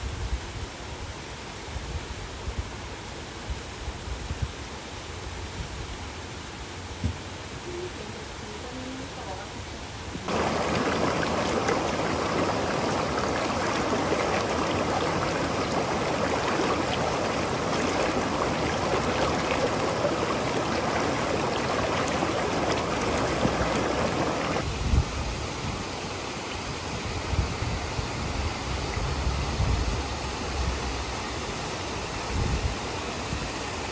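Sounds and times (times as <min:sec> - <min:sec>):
stream rushing over stones: 0:10.2 - 0:24.7
trees rustling: 0:10.3 - 0:24.6
gusts of wind: 0:10.3 - 0:25.1.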